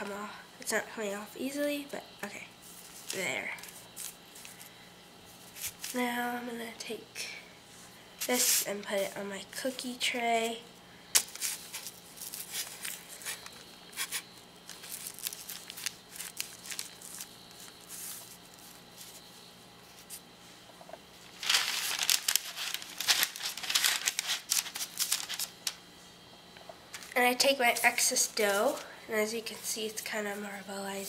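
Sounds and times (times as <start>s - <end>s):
parchment paper crinkling: 2.6s - 4.7s, 5.3s - 6.0s, 11.2s - 20.2s, 21.2s - 25.8s, 26.9s - 31.0s.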